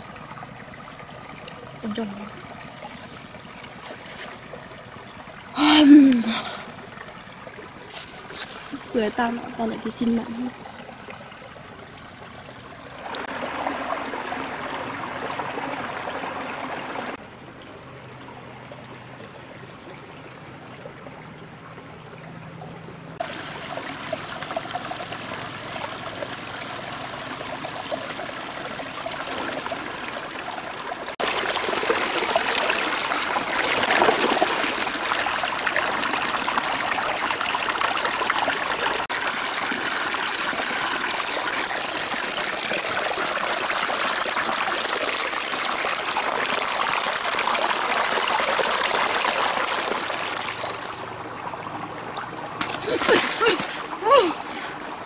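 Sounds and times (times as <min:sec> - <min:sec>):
rocky stream trickling: 0:00.0 - 0:55.0
water splashing around fish: 0:23.2 - 0:55.0.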